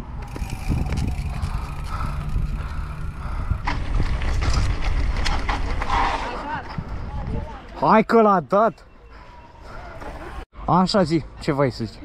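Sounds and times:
bike rattling clicks: 0.0 - 6.0
bike tyre and wind rumble: 0.0 - 7.8.

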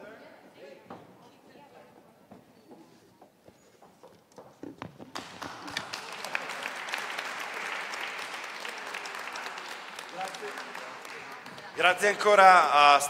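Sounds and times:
audience applause: 5.1 - 13.0.

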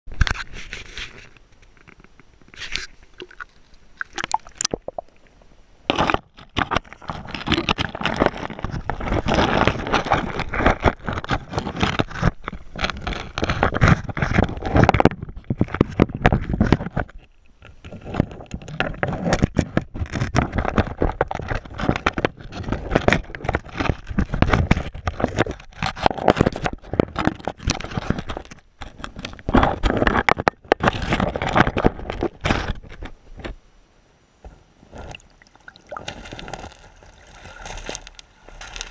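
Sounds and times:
underwater river current: 0.4 - 16.6, 34.4 - 38.9
water rushing over gravel: 35.0 - 38.9.

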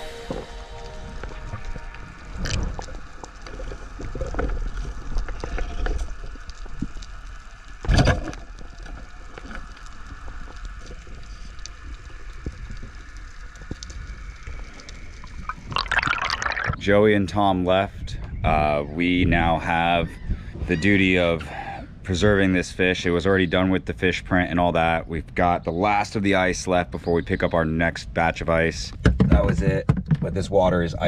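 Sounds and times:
underwater rush of water: 0.0 - 16.8
clicks and crackles: 0.4 - 16.8.

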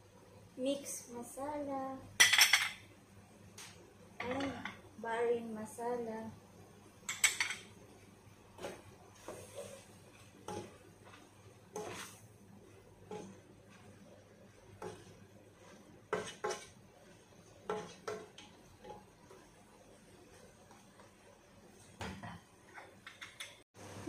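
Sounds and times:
wooden spatula scraping a pot: 8.6 - 21.9.

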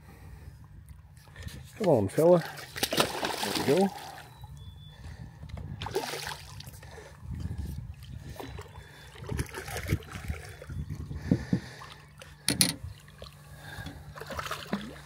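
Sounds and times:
fish splashing in water: 2.4 - 4.3, 8.3 - 10.7, 12.9 - 15.0.

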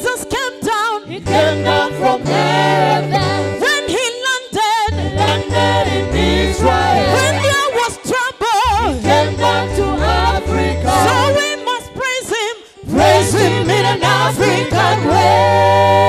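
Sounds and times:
singer with strong vibrato: 0.0 - 16.0
steady bass line: 1.2 - 3.6, 4.9 - 7.7, 8.7 - 11.4, 12.9 - 16.0.

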